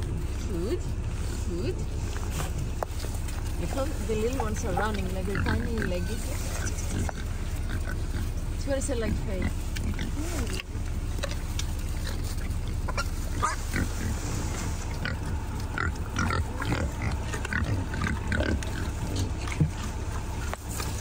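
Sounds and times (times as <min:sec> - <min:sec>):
wild boars grunting: 0:00.0 - 0:21.0
wild boars squealing: 0:04.5 - 0:21.0.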